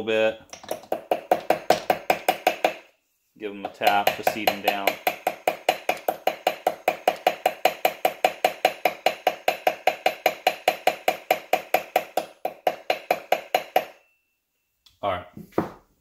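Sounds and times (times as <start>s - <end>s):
small hammer tapping on metal: 3.6s - 14.0s.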